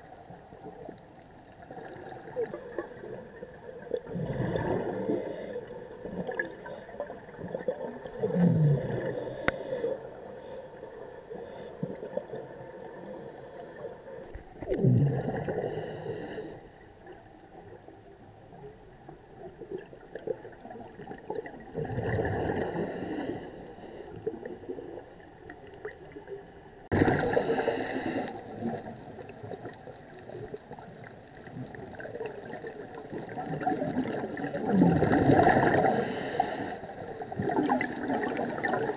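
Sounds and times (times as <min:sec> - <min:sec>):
low underwater hum: 0:00.0 - 0:38.9
diver breathing through regulator: 0:04.2 - 0:05.8, 0:08.4 - 0:12.2, 0:15.3 - 0:16.8, 0:22.4 - 0:24.3, 0:27.0 - 0:28.9, 0:35.6 - 0:37.1.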